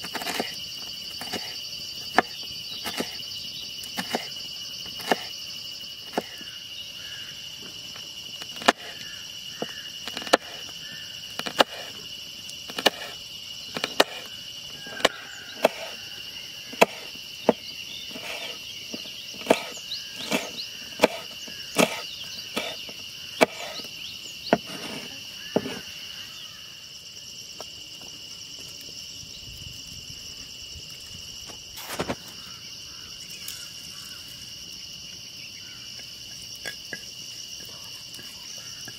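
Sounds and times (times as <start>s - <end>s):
insects trilling: 0.0s - 38.9s
knife slicing on wooden board: 12.7s - 14.3s, 14.9s - 16.0s, 16.7s - 23.8s, 24.5s - 25.9s.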